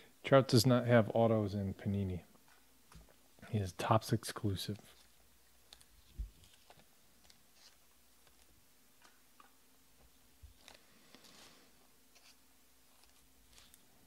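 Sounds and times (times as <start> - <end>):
handling trading cards: 4.6 - 14.0.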